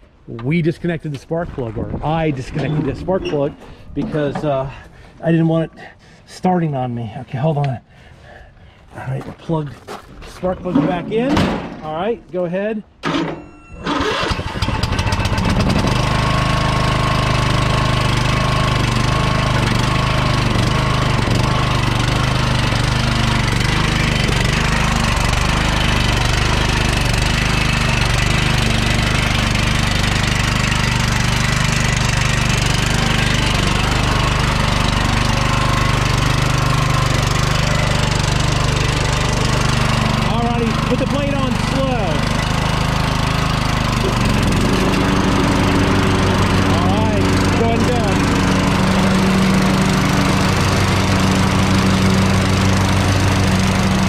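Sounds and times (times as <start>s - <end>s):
lawn tractor engine running: 13.0s - 54.0s.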